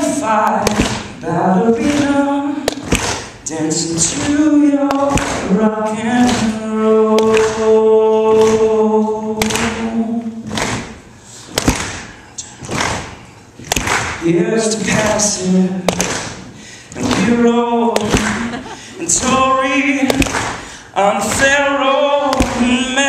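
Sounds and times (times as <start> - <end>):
man singing a cappella: 0.0 - 10.5, 14.2 - 23.0.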